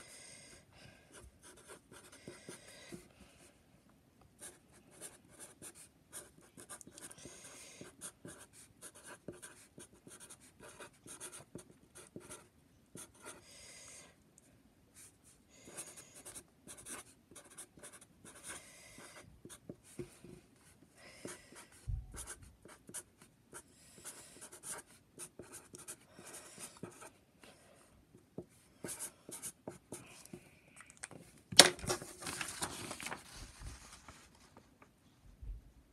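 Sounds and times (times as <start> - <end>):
marker writing on paper: 1.1 - 3.0, 4.4 - 13.4, 15.7 - 20.2, 21.2 - 23.1, 24.0 - 27.1, 28.4 - 30.0
paper rustling: 31.6 - 34.9.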